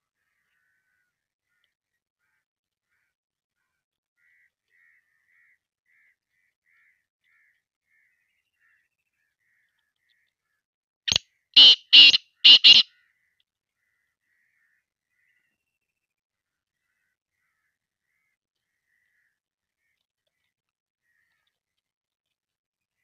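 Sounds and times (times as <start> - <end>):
bird harsh grating call: 11.1 - 12.8
faint chirps: 11.1 - 12.8.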